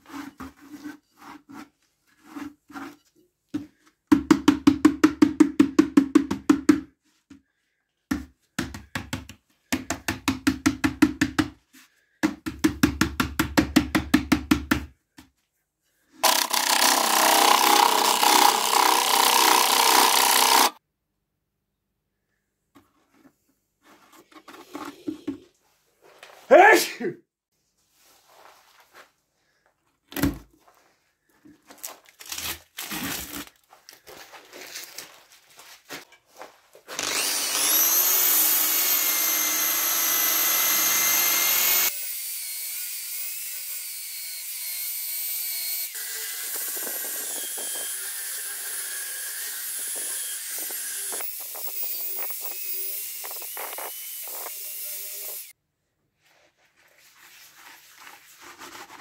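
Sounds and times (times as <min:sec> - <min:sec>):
electric drill sanding wood: 0:16.2 - 0:20.8, 0:36.9 - 0:55.5.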